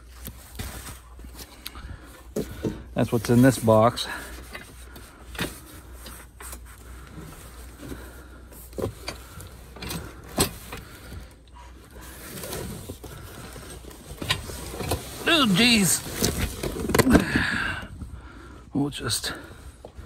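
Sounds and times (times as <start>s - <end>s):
cardboard and plastic crinkling: 0.0s - 17.5s.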